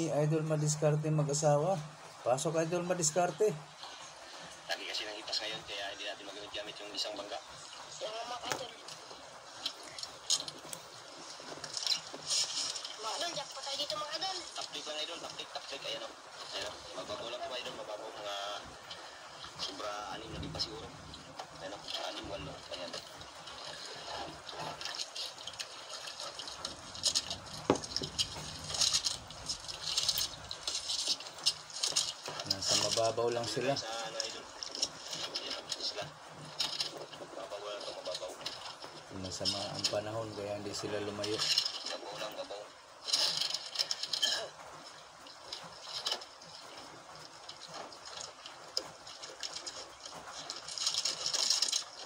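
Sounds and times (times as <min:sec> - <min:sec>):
water splashing and sloshing: 0:00.0 - 0:52.0.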